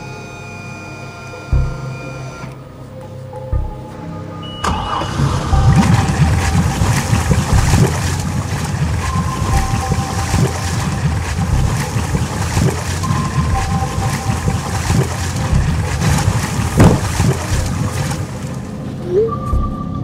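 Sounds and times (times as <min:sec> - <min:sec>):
speedboat engine rumbling: 0:00.9 - 0:19.7
water rushing past hull: 0:04.6 - 0:18.9.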